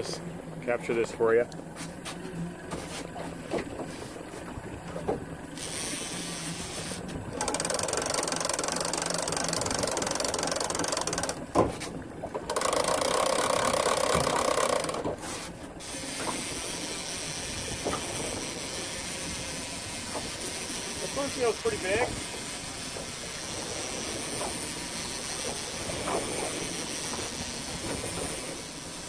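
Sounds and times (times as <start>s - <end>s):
outboard motor running low: 0.0s - 29.0s
fishing reel whirring: 5.5s - 11.5s, 12.5s - 15.2s, 15.8s - 29.0s.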